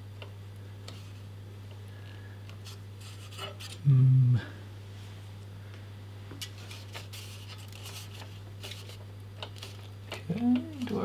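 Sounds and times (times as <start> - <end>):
steady low hum: 0.0 - 11.0
man humming: 3.8 - 4.6, 10.2 - 11.0.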